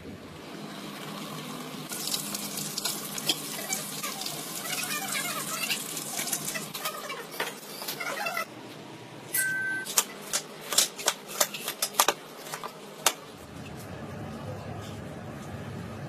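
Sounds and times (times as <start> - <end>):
chicken frying in hot oil: 0.4 - 7.1.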